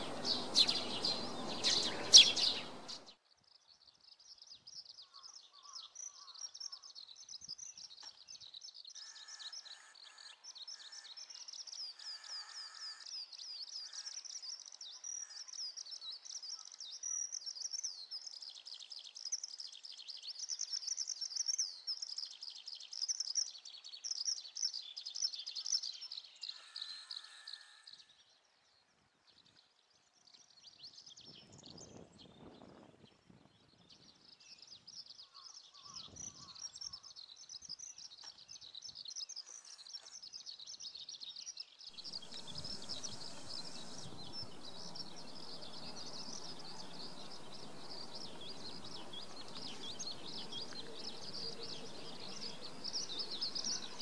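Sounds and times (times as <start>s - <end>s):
steady rushing noise: 0.0s - 3.0s, 42.0s - 54.0s
birds chirping and singing: 0.0s - 3.2s, 4.2s - 28.5s, 30.2s - 54.0s.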